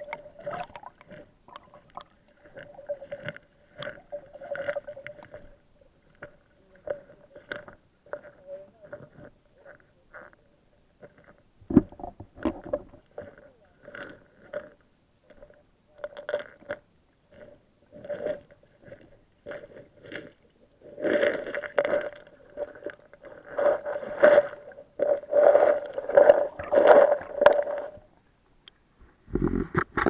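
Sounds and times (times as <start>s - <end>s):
muffled underwater swishes: 0.0s - 10.4s, 17.3s - 28.1s
faint steady hum: 0.0s - 30.0s.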